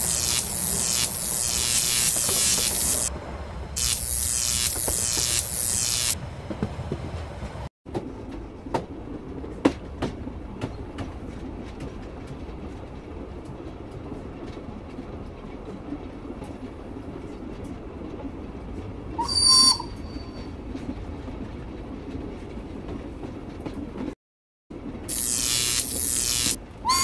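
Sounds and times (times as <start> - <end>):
train running rumble: 6.2 - 19.2
wheels clicking over rail joints: 6.4 - 19.0, 19.9 - 24.2
high-pitched wheel squeal: 19.2 - 20.5.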